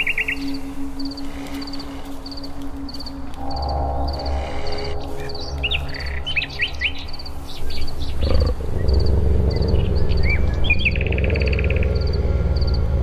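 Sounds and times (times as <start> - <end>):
low droning music: 0.0 - 13.0
small birds chirping: 0.0 - 13.0
low rumbling: 3.4 - 13.0.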